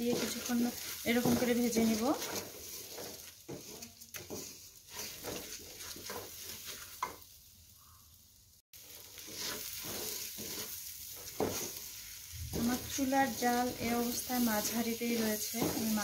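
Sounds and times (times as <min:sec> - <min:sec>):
wooden spatula scraping pot: 0:00.0 - 0:07.2, 0:08.8 - 0:16.0
rice sizzling in oil: 0:00.0 - 0:16.0.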